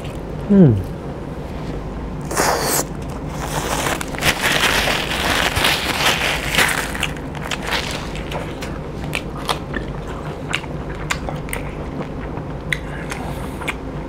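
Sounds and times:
paper tissue rustling: 3.3s - 8.4s
close-miked chewing: 5.5s - 14.0s.

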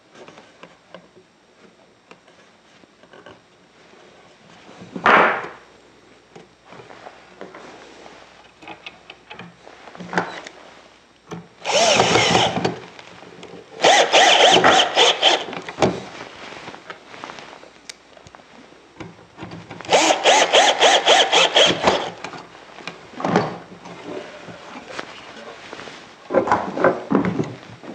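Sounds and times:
cordless drill driving screws: 11.6s - 12.6s, 13.8s - 15.5s, 19.9s - 22.2s.

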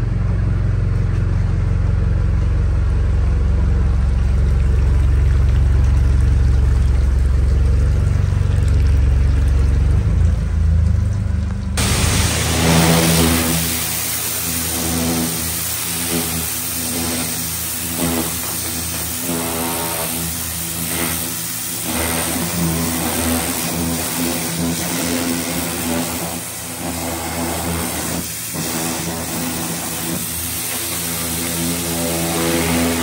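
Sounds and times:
pressure washer motor drone: 0.0s - 33.0s
high-pressure water jet hissing: 11.8s - 33.0s.

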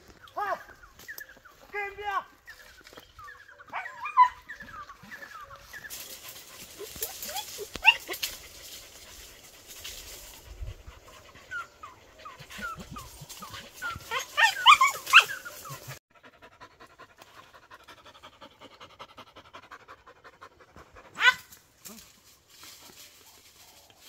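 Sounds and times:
dogs yelping: 3.2s - 21.6s
dog panting: 4.5s - 14.2s, 15.4s - 21.2s.

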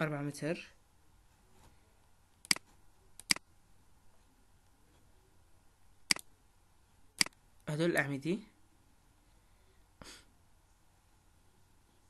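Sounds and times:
faint room hiss: 0.0s - 12.0s
computer mouse clicks: 2.4s - 3.4s, 7.2s - 7.4s.

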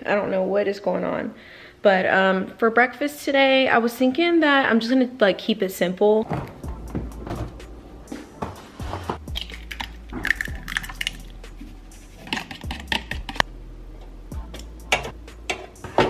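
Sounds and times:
eggs cracking: 9.3s - 11.4s, 12.2s - 13.4s.

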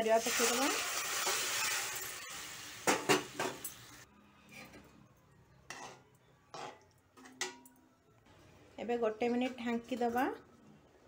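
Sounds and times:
metal spatula scraping a pan: 0.2s - 2.5s, 5.7s - 6.8s.

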